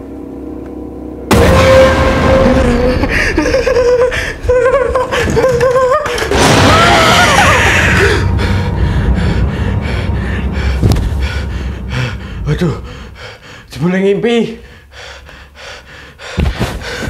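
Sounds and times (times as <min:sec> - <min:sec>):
low rumble: 0:00.0 - 0:13.8
harsh shriek: 0:01.3 - 0:03.1
sharp hit: 0:01.3 - 0:05.2, 0:06.3 - 0:13.2
person crying out: 0:02.5 - 0:08.3.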